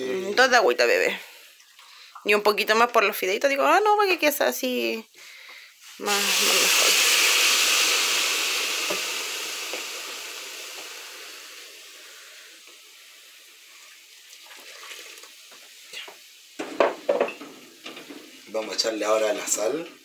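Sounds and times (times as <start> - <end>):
water hissing in a hot pot: 5.6 - 20.0.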